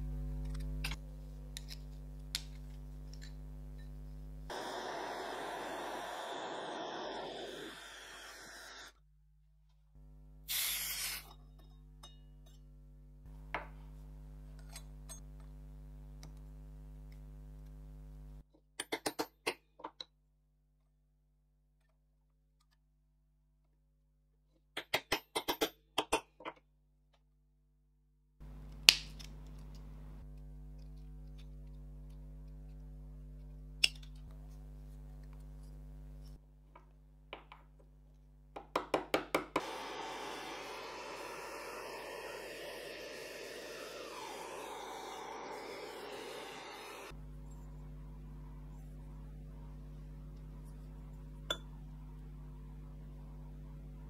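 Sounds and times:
steady low hum: 0:00.0 - 0:08.9, 0:39.6 - 0:54.0
gas torch hissing: 0:04.5 - 0:08.9, 0:10.5 - 0:11.3, 0:39.5 - 0:47.2
short hiss: 0:10.5 - 0:11.3.

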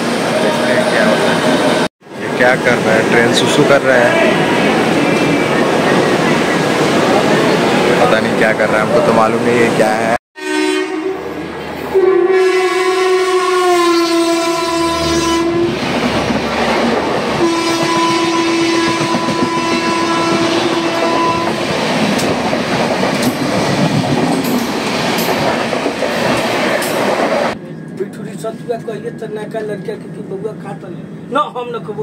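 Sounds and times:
train rumble and wheel clatter: 0:00.0 - 0:10.2, 0:14.0 - 0:32.0
train horn blasts: 0:10.4 - 0:15.8, 0:17.4 - 0:21.7.

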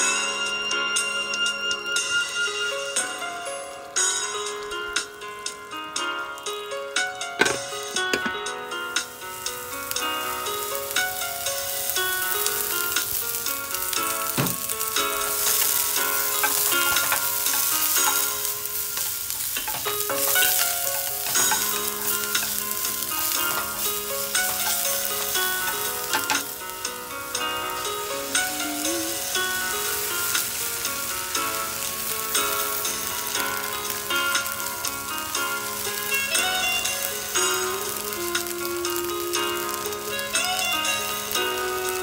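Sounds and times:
vegetables sizzling in a frying pan: 0:02.2 - 0:42.0
spatula scraping a pan: 0:14.3 - 0:26.6.

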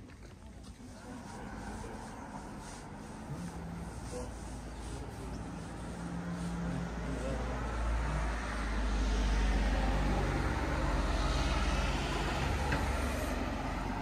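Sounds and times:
vehicle passing on street: 0:00.0 - 0:14.0.

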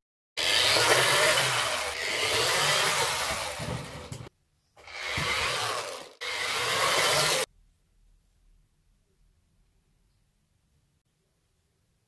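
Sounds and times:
toy car motor whirring: 0:00.4 - 0:03.6, 0:04.8 - 0:07.5.

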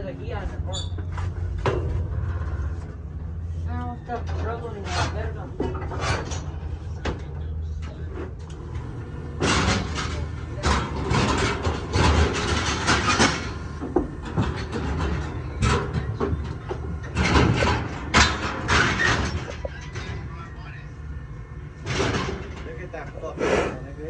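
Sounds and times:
low steady hum: 0:00.0 - 0:24.0
steel rails and gates clanking: 0:04.0 - 0:20.8.

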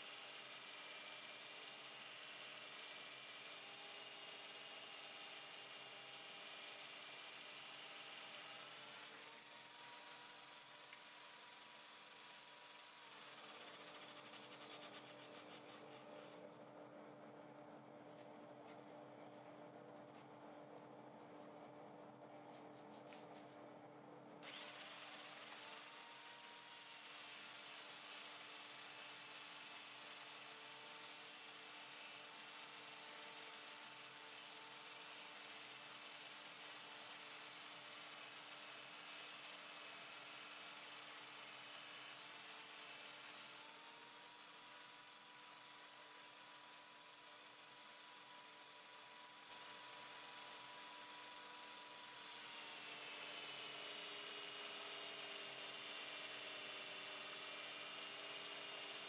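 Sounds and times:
electric drill motor whine: 0:00.0 - 0:16.9, 0:24.4 - 0:59.0
electric motor whining: 0:24.4 - 0:26.2.

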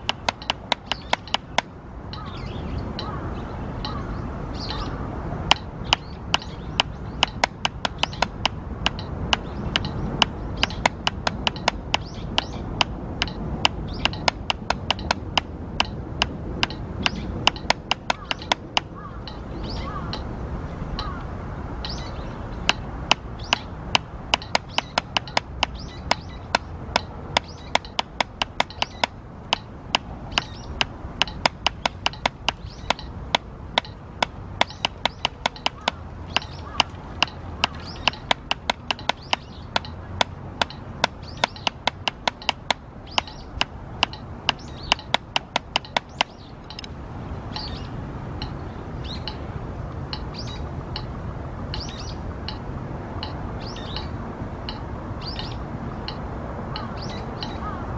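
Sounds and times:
drumsticks tapping practice pad: 0:00.0 - 0:02.3, 0:05.5 - 0:19.4, 0:22.6 - 0:47.8
birds chirping: 0:00.0 - 0:57.9.

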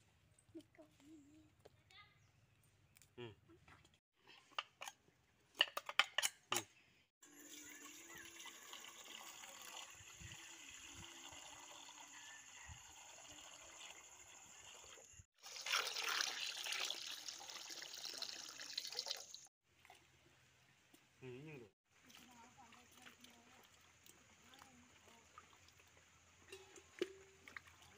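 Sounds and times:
water pouring into steel bowl: 0:07.3 - 0:19.5.

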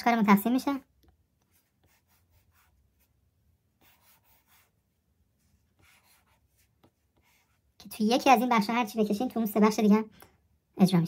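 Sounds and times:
stylus scratching on glass screen: 0:03.8 - 0:09.2.

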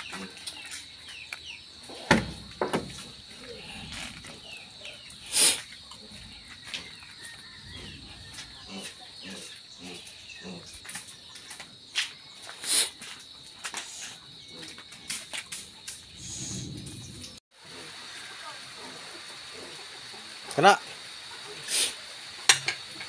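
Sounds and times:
small birds chirping: 0:00.0 - 0:17.4.

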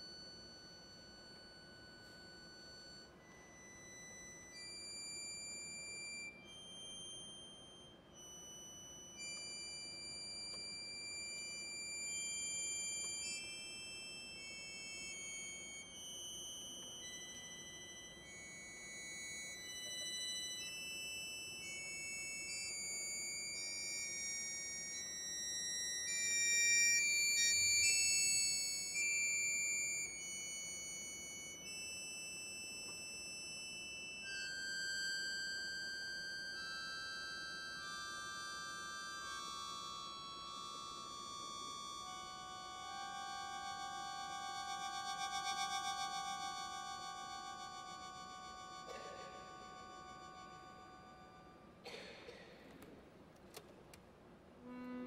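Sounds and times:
button accordion: 0:00.0 - 0:51.8
cello: 0:54.6 - 0:55.0.

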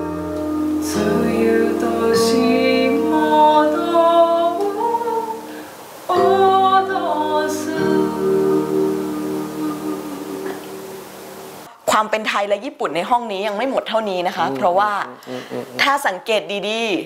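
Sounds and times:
electronic keyboard chords: 0:00.0 - 0:04.2
woman singing: 0:00.8 - 0:10.7.

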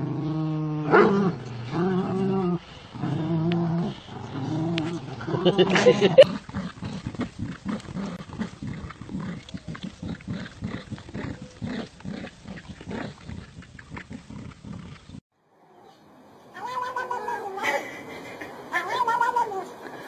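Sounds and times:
dogs growling in play: 0:00.0 - 0:15.2.

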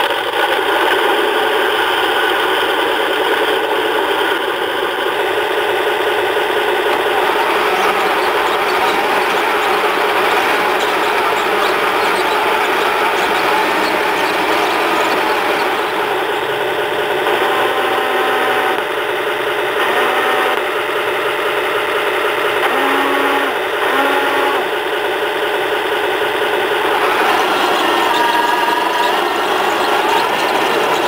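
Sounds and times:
toy tank motors and tracks rattling: 0:00.0 - 0:31.0
high motor whine: 0:00.9 - 0:21.4, 0:22.5 - 0:31.0.

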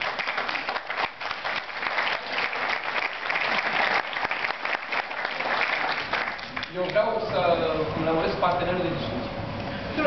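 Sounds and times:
large audience applauding: 0:00.0 - 0:07.0.

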